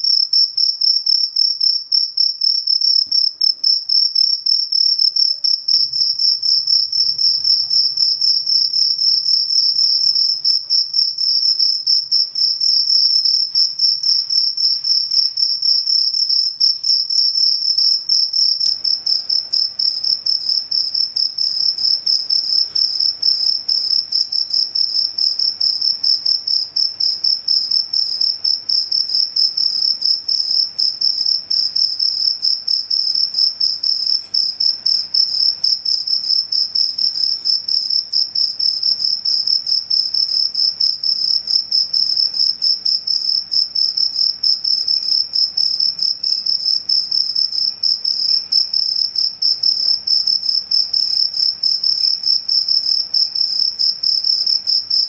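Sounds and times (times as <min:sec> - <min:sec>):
cricket chirping: 0:00.0 - 0:55.0.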